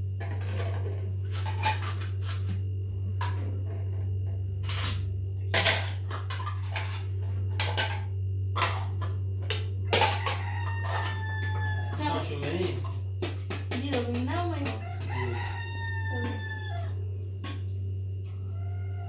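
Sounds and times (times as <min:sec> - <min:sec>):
steady low hum: 0:00.0 - 0:19.0
rooster crowing: 0:09.8 - 0:12.7, 0:14.6 - 0:17.3, 0:18.3 - 0:19.0.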